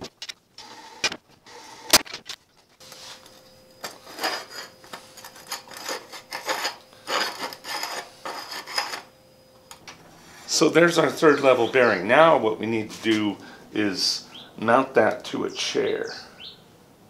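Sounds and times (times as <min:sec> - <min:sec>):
steel tubing scraping on steel table: 0:02.9 - 0:09.2.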